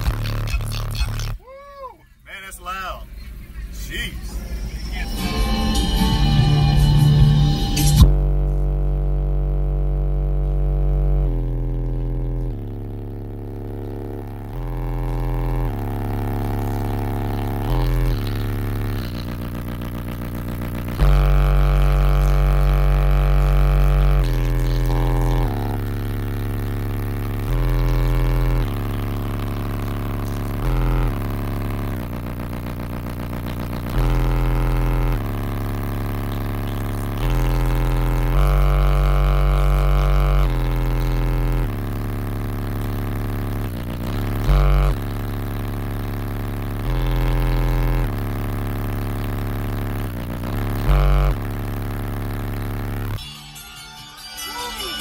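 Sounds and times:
bass-heavy music through subwoofer: 0.0 - 1.6, 2.6 - 55.0.

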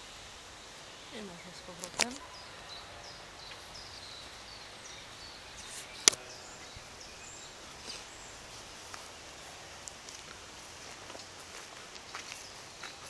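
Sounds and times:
faint bird chirps: 0.6 - 9.6.

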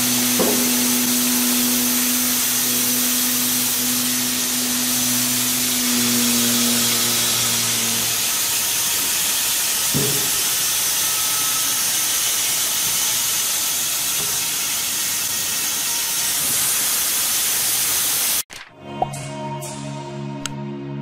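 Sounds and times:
band saw cutting log: 0.0 - 18.4.

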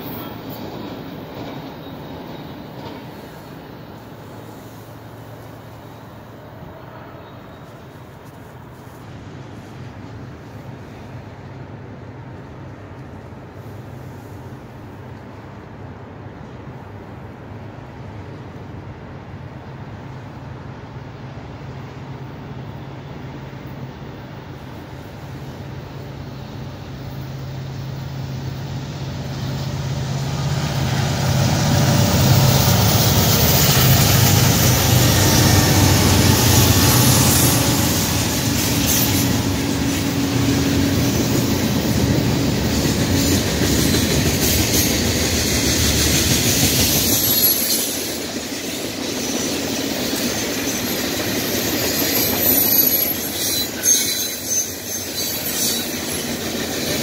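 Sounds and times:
rail-joint clicks: 0.0 - 3.8, 30.8 - 57.0
locomotive engine drone: 16.4 - 47.6
wheel squeals: 46.8 - 48.1, 50.0 - 57.0.

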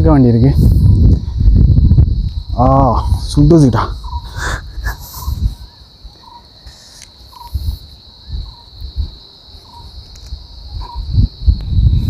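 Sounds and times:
insects droning: 0.0 - 12.0
bird calling: 3.8 - 8.8, 9.6 - 10.0.

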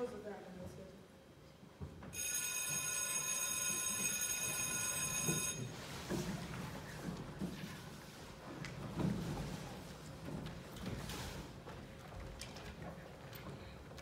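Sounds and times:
bell ringing: 2.2 - 5.7.

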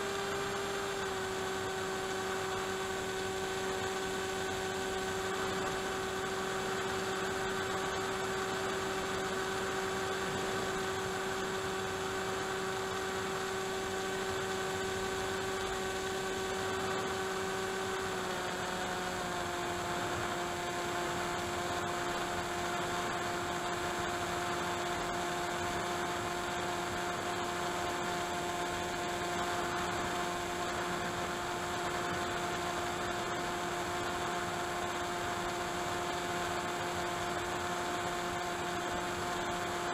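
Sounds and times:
model aircraft motor droning: 0.0 - 39.9.

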